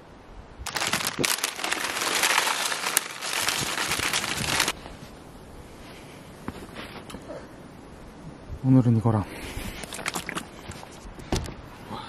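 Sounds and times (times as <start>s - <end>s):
plastic packaging crinkling: 0.7s - 4.8s.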